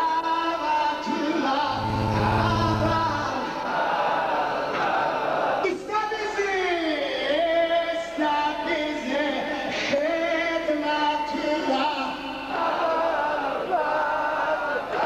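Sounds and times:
voices chanting in long held notes: 1.7 - 5.6, 12.5 - 15.0.

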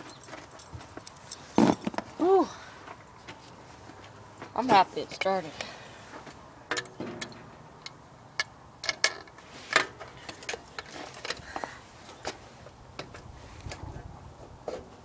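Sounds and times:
sharp clicks and light knocks: 6.7 - 12.4.

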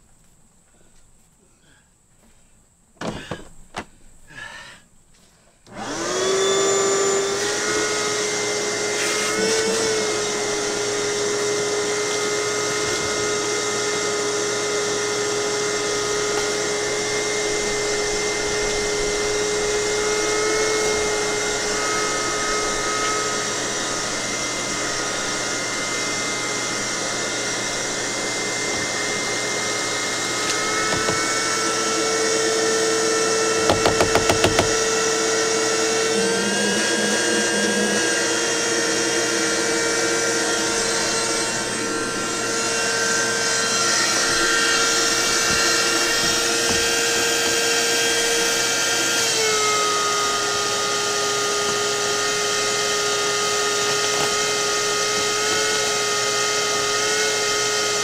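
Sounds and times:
electric motor whining: 5.7 - 58.0
knocks: 30.8 - 31.3, 33.6 - 34.8.

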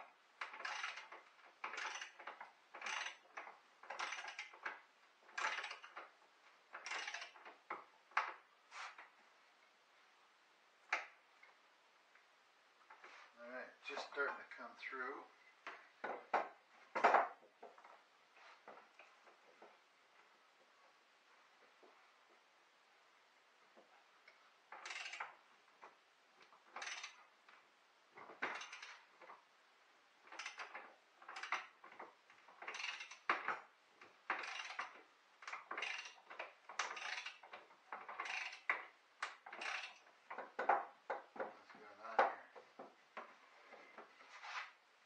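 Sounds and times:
hand tool scraping wood: 8.7 - 9.2, 43.2 - 44.8.

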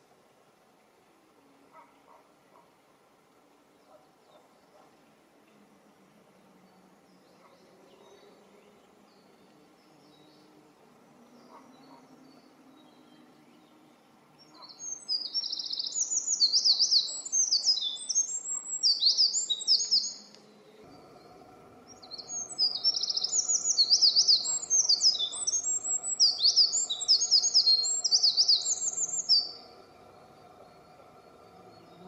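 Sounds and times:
wren singing trills: 11.2 - 32.0.

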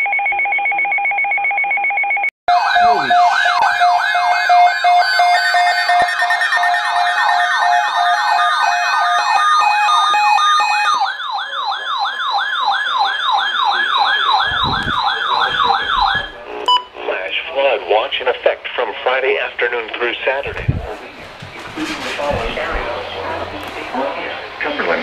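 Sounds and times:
warbling siren tone: 2.5 - 16.4
steady beeping tone: 2.5 - 17.0.

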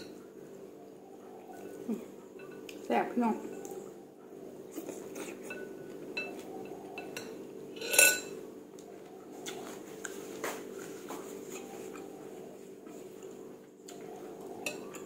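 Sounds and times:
spoon clinking on bowl: 5.5 - 6.4, 7.0 - 8.4.

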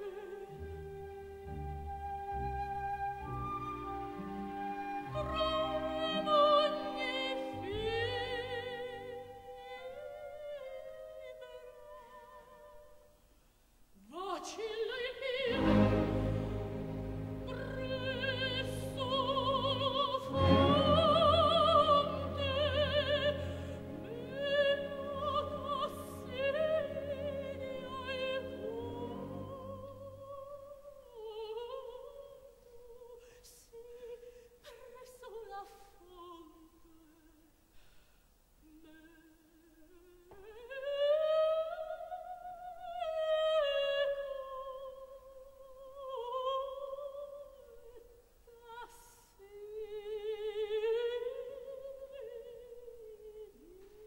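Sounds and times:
soprano singing opera: 0.0 - 13.2, 14.0 - 37.5, 38.6 - 54.0
sustained orchestral chords: 15.5 - 29.8.

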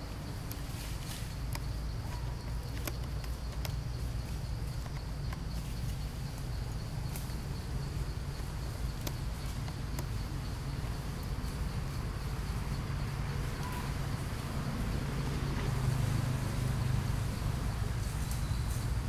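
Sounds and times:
insects buzzing: 0.0 - 19.0
faint sharp clicks: 0.5 - 1.7, 2.6 - 3.8.

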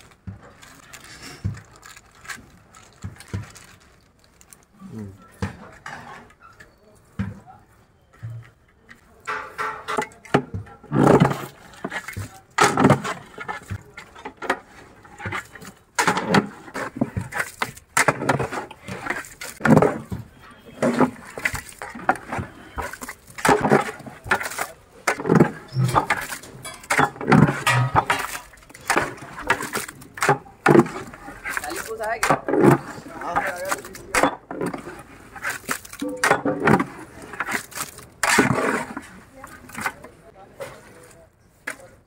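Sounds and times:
metal spatula scraping pot: 5.4 - 6.8, 9.3 - 41.1
wet churning of meat: 10.8 - 40.0.

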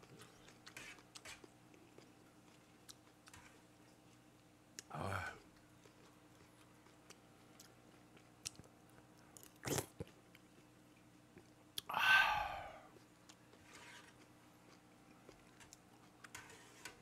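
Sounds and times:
person chewing food: 0.0 - 17.0
breathy sound: 11.9 - 12.9.

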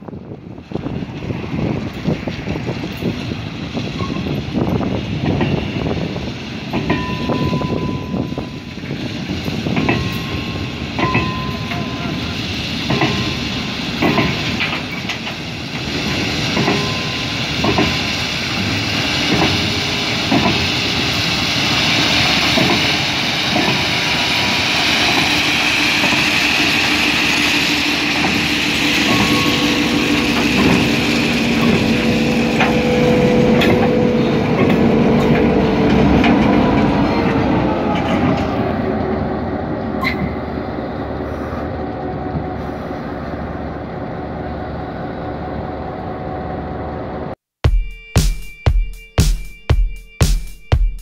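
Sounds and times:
diesel locomotive engine drone: 0.0 - 51.0
train wheels knocking: 12.8 - 38.6.

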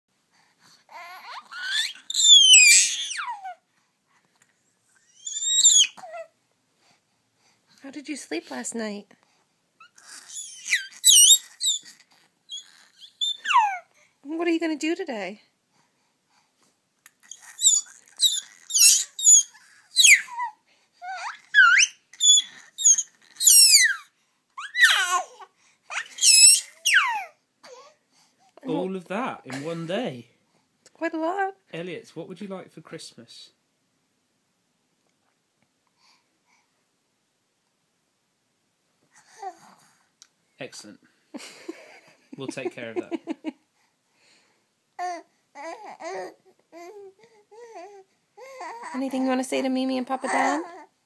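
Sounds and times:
baby babbling in squeals: 0.9 - 3.6, 5.0 - 6.3, 9.8 - 13.9, 17.2 - 27.9, 45.0 - 49.0, 50.2 - 50.9.

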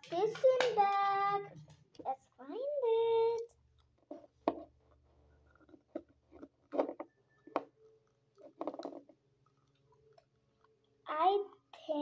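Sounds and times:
plastic toys tapping and rustling: 0.0 - 2.2, 4.0 - 7.8, 8.4 - 9.9.

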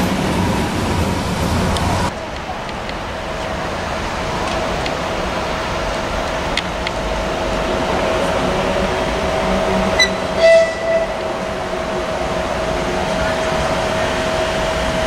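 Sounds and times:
electric locomotive whine: 2.6 - 15.0
train horn toot: 9.8 - 11.4.

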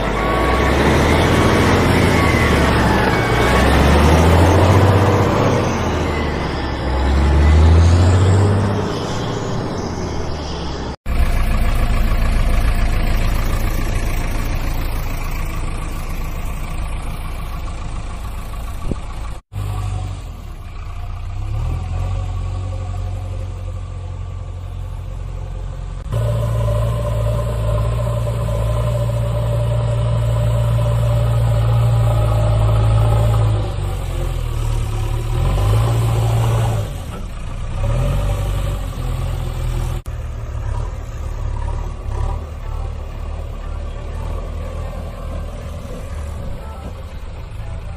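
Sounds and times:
heavy vehicle engine drone: 0.0 - 47.9.

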